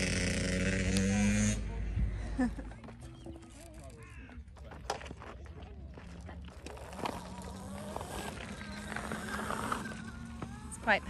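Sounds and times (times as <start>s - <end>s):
small motorbike motor whine: 0.0s - 1.7s, 6.7s - 11.0s.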